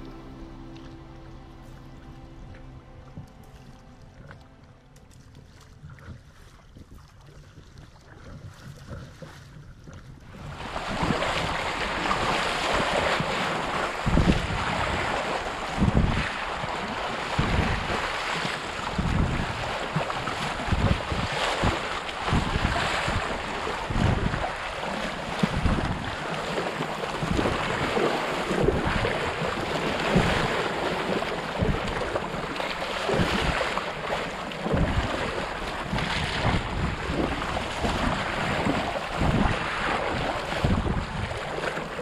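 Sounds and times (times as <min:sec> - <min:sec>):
river water noise: 0:00.0 - 0:42.0
wind buffeting microphone: 0:00.0 - 0:42.0.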